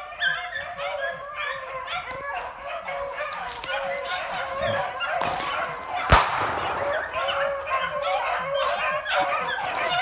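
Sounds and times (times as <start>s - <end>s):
dogs baying and yelping: 0.0s - 10.0s
gunshot with echo: 6.1s - 7.4s.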